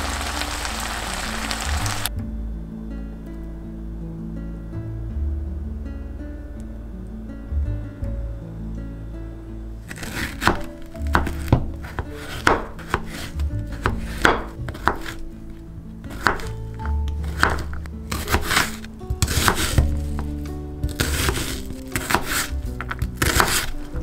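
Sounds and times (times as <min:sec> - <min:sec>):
light background music: 0:00.0 - 0:24.0
knife chopping on plastic board: 0:09.9 - 0:15.2, 0:16.1 - 0:16.6, 0:17.2 - 0:20.3, 0:20.9 - 0:23.8.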